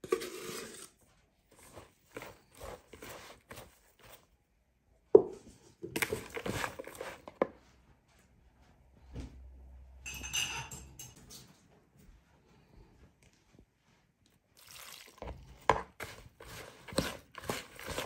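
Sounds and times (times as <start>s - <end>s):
spoon scraping in plastic bowl: 0.0s - 4.3s, 5.9s - 7.6s, 14.8s - 18.0s
spoon clink: 10.1s - 11.2s.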